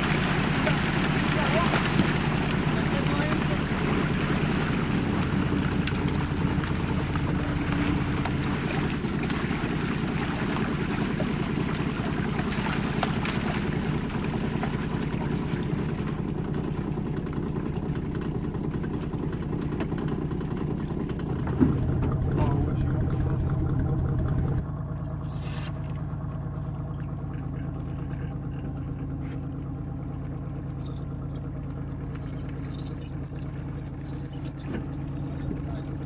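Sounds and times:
fish thrashing and splashing: 0:00.0 - 0:22.3
outboard motor idling: 0:00.0 - 0:36.0.

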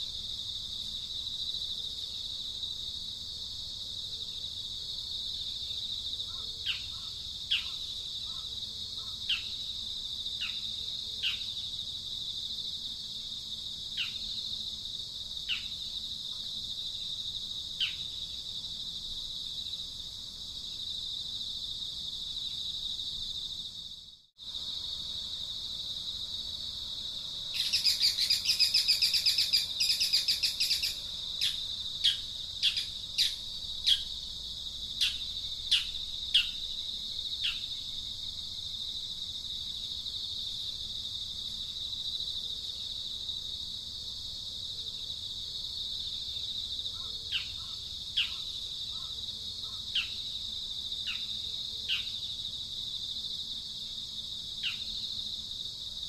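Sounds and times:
high insect drone: 0:00.0 - 0:56.0
rapid bird chattering: 0:27.6 - 0:34.0.

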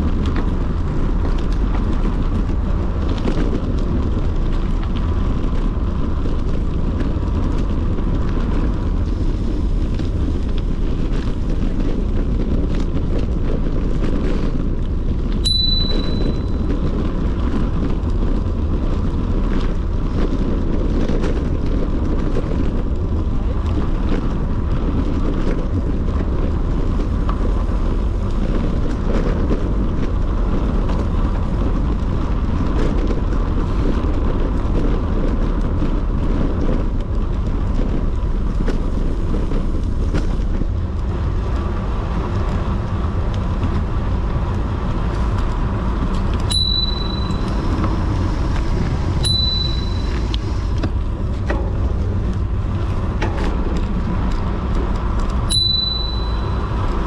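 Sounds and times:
bicycle tyre and road noise: 0:00.0 - 0:57.0
wind rushing over microphone: 0:00.0 - 0:57.0
short high beep: 0:15.4 - 0:16.6, 0:46.5 - 0:47.5, 0:49.3 - 0:50.1, 0:55.5 - 0:56.6.

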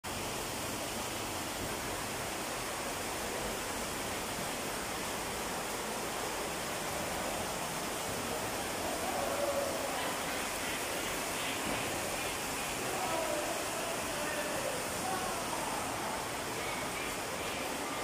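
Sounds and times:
underground river rushing: 0:00.0 - 0:18.0.

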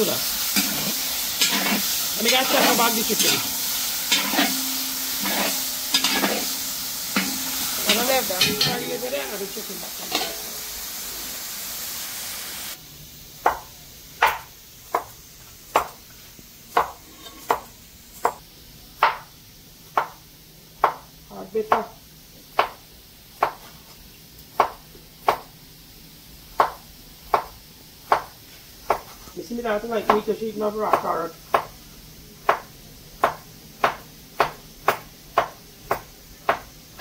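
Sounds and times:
food sizzling in a pot: 0:00.0 - 0:37.0
knife chopping on cutting board: 0:13.5 - 0:15.1, 0:15.7 - 0:16.0, 0:16.7 - 0:18.4, 0:19.0 - 0:19.2, 0:23.4 - 0:23.7, 0:28.9 - 0:29.1, 0:30.9 - 0:31.7, 0:32.5 - 0:36.7.

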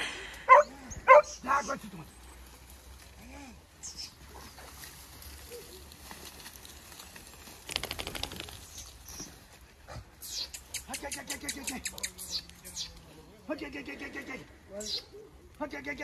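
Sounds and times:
dogs yelping and barking: 0:00.5 - 0:01.4.

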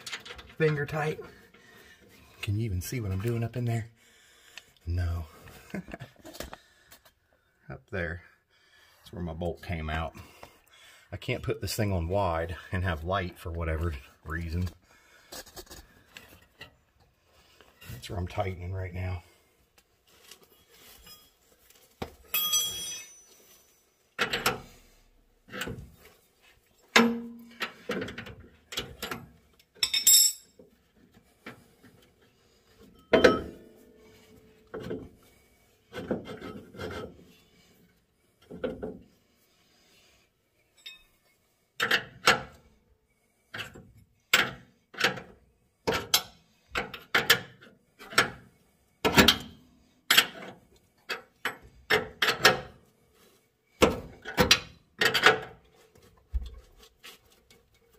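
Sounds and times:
wrench clinking on metal: 0:22.3 - 0:23.5, 0:29.0 - 0:30.6, 0:40.8 - 0:41.1.

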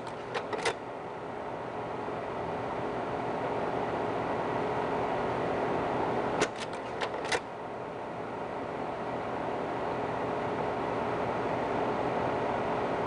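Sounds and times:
slide changer clicks: 0:00.0 - 0:00.8
slide projector fan noise: 0:00.0 - 0:13.0.

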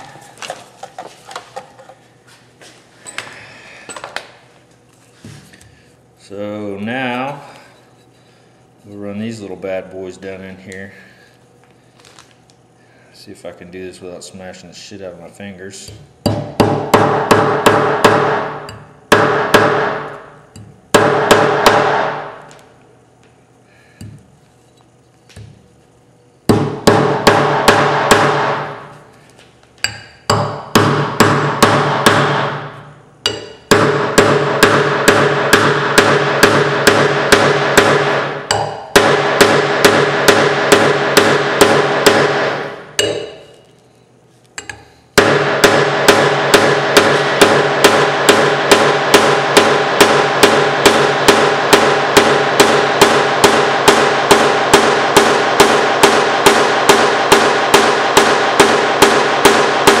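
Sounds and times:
hammer blows ringing on metal: 0:16.2 - 0:20.2, 0:20.9 - 0:22.4, 0:26.5 - 0:28.9, 0:29.9 - 0:43.6, 0:45.2 - 1:00.0.

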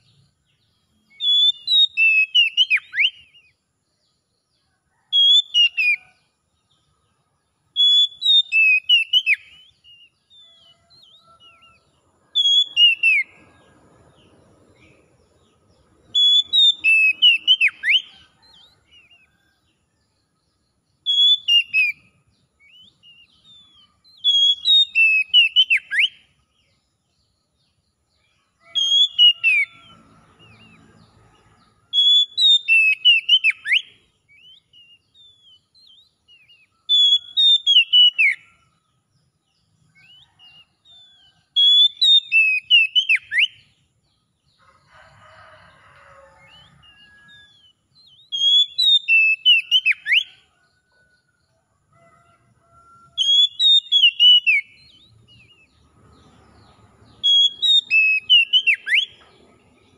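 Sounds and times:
bird singing whistles: 0:01.1 - 0:03.6, 0:07.8 - 0:11.7, 0:12.4 - 0:13.4, 0:16.1 - 0:18.2, 0:21.0 - 0:26.3, 0:28.7 - 0:29.8, 0:32.0 - 0:38.5, 0:41.6 - 0:43.6, 0:46.4 - 0:50.4, 0:53.2 - 0:55.7, 0:57.2 - 0:59.2.

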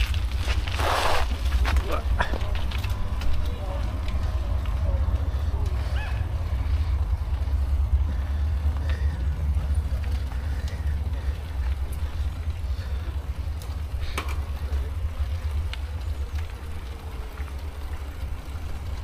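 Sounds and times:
bicycle riding rumble: 0:00.0 - 0:19.0
faint voices: 0:01.6 - 0:18.6.

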